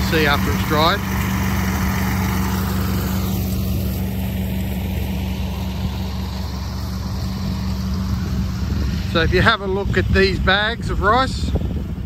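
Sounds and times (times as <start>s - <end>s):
combine harvester engine drone: 0.0s - 12.0s.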